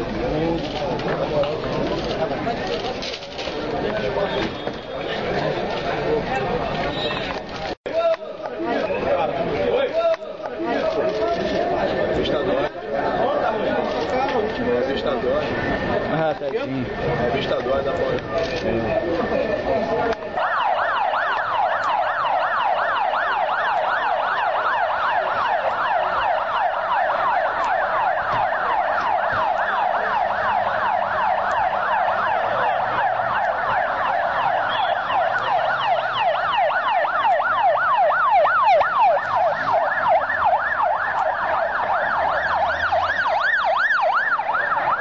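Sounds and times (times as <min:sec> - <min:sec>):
second siren: 0:02.0 - 0:07.4, 0:10.9 - 0:45.0
police siren yelping: 0:10.1 - 0:45.0.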